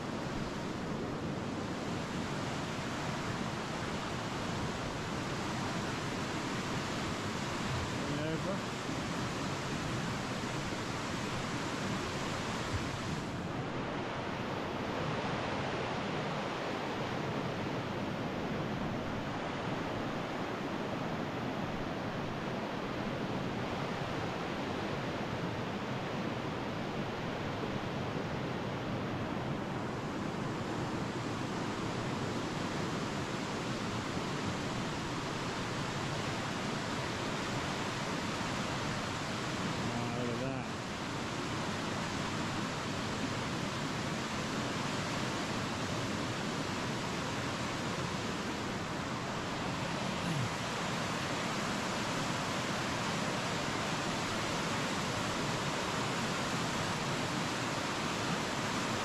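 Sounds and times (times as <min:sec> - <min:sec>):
waterfall rushing: 0:28.9 - 0:59.0.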